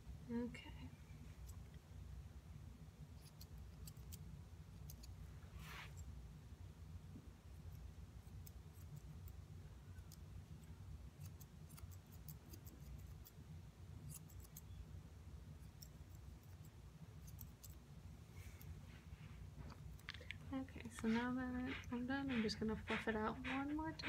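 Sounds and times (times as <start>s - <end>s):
low steady hum: 0.0s - 24.0s
scissors snipping hair: 3.2s - 4.2s, 4.8s - 5.2s, 11.2s - 13.4s, 14.0s - 14.7s, 15.6s - 17.8s.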